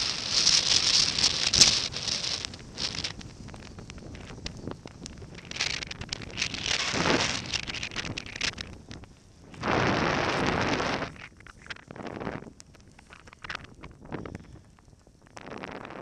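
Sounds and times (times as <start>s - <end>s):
skis hissing through powder: 0.0s - 14.0s
wind buffeting microphone: 0.0s - 16.0s
sleeve rubbing against camera: 5.4s - 8.5s, 9.5s - 12.4s.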